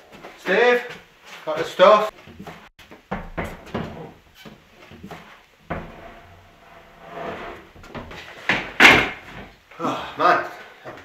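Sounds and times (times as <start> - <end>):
footsteps: 0.0 - 6.2.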